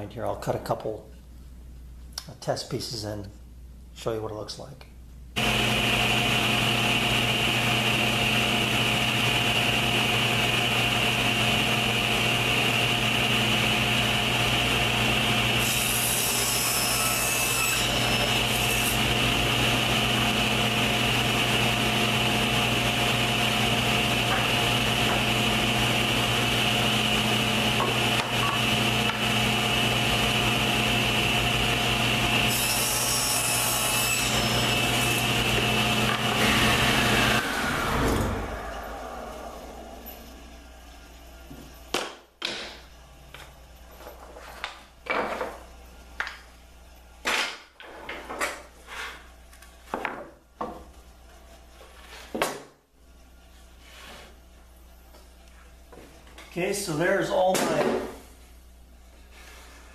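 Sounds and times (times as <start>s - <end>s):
table saw running: 5.4s - 42.0s
saw blade cutting wood: 14.9s - 21.8s, 23.4s - 29.4s, 32.3s - 38.4s.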